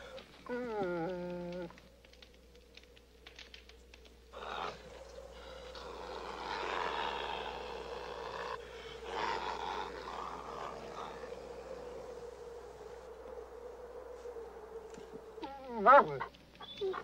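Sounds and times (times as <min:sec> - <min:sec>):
animal snarling: 0:04.3 - 0:12.2.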